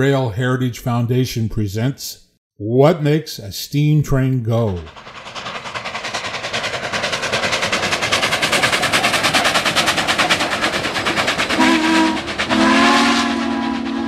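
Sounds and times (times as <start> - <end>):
steam locomotive exhaust chuffs: 3.8 - 14.0
steam whistle chord: 11.6 - 14.0.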